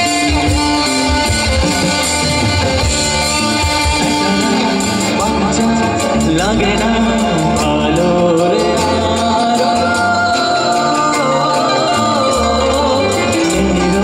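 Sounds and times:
band playing: 0:00.0 - 0:14.0
man singing into microphone: 0:03.3 - 0:14.0.

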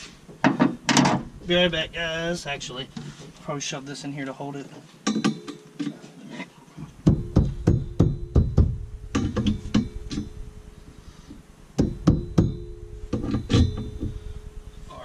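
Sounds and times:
music with heavy drum beat: 0:07.1 - 0:08.8.

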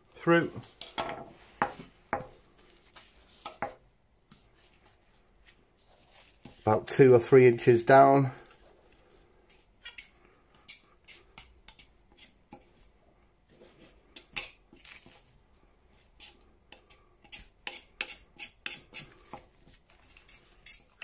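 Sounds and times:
knife scraping bone: 0:09.8 - 0:12.7, 0:16.2 - 0:21.0.

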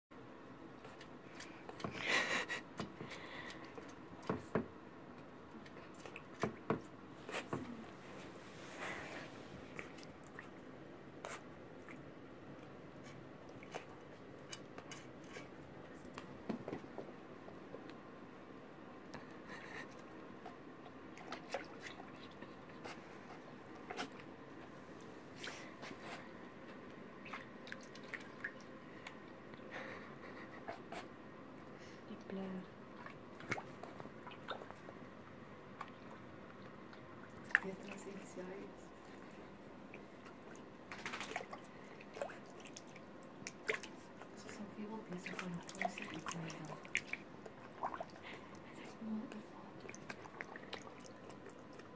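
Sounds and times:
paws slapping water: 0:05.2 - 0:07.7, 0:21.1 - 0:23.2, 0:27.2 - 0:29.3, 0:32.9 - 0:35.0, 0:39.0 - 0:51.9
dog pawing splashing water: 0:40.3 - 0:48.5.

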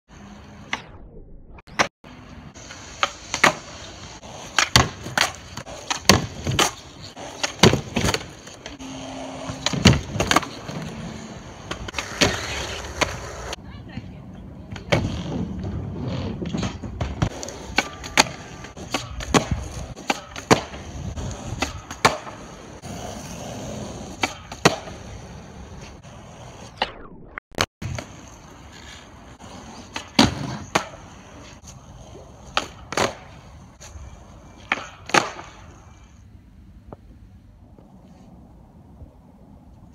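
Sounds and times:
skateboard wheels rolling: 0:01.7 - 0:27.1, 0:27.8 - 0:39.9
skateboard pops and landings: 0:02.6 - 0:11.0, 0:11.6 - 0:13.6, 0:14.7 - 0:25.2, 0:29.5 - 0:31.2, 0:32.4 - 0:33.4, 0:34.6 - 0:35.8
skateboard clacks: 0:02.7 - 0:08.8, 0:16.4 - 0:22.6.

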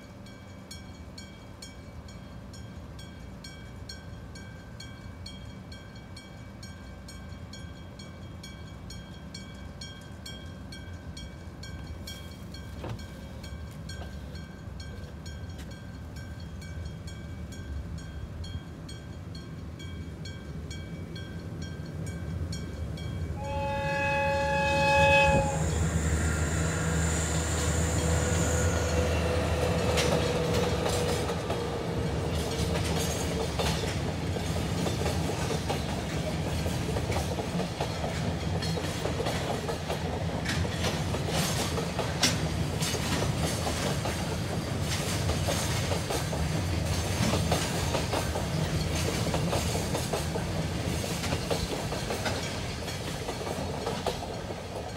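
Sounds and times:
train rumbling past: 0:00.0 - 0:54.9
train horn: 0:23.4 - 0:31.5.

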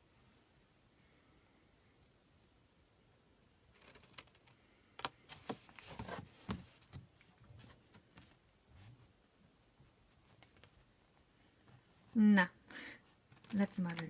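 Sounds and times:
scissors cutting cardstock: 0:13.3 - 0:14.0.

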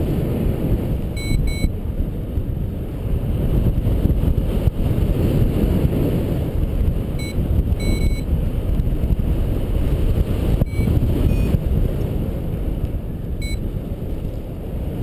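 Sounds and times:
wind buffeting microphone: 0:00.0 - 0:15.0
short high beeps: 0:01.2 - 0:01.7, 0:07.2 - 0:08.3, 0:10.6 - 0:11.6, 0:13.4 - 0:13.6.

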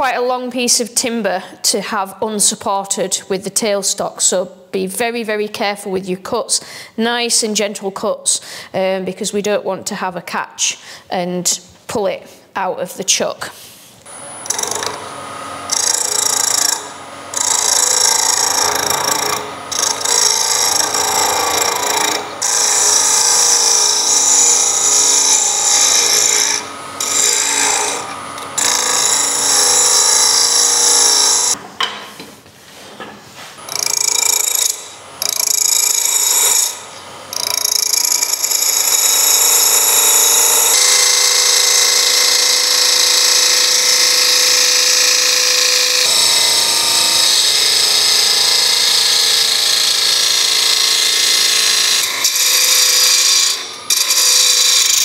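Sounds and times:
lathe gouge scraping wood: 0:14.0 - 0:31.6, 0:33.5 - 0:55.0.

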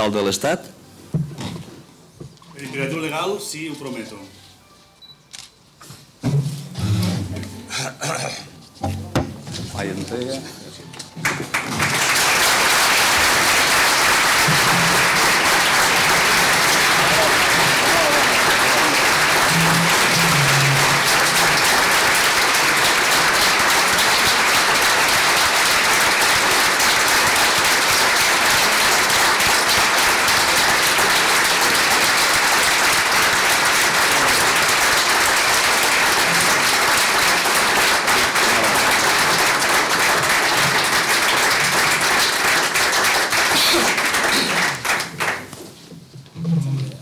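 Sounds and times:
crowd applauding: 0:11.2 - 0:45.6.

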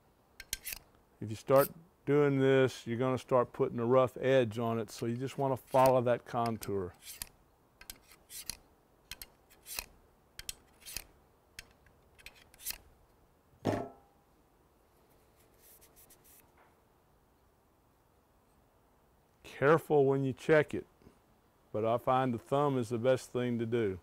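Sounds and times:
metal file scraping a blade: 0:00.4 - 0:00.9, 0:01.5 - 0:01.8, 0:05.2 - 0:12.8.

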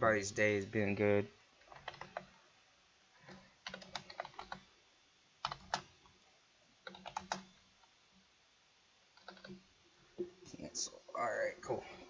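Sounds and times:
typing on computer keyboard: 0:01.6 - 0:02.4, 0:03.2 - 0:04.7, 0:05.4 - 0:05.9, 0:06.8 - 0:07.5, 0:09.2 - 0:09.6.

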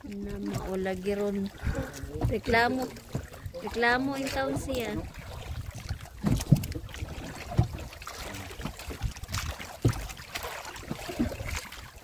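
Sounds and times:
water sloshing and splashing: 0:00.0 - 0:12.0
dull knocks against boat: 0:01.7 - 0:05.1, 0:05.8 - 0:10.2.

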